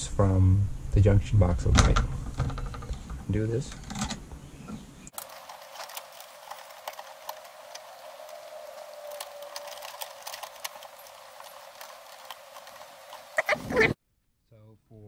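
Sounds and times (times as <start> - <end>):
copper wires clicking and scraping: 5.1 - 14.0.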